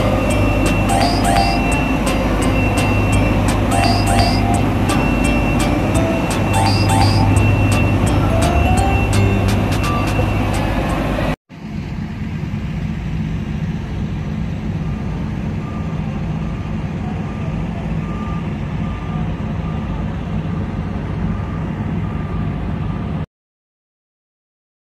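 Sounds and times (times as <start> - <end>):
reversing beeper: 0.0 - 11.4, 14.9 - 22.6
diesel vehicles rumbling: 0.0 - 23.2.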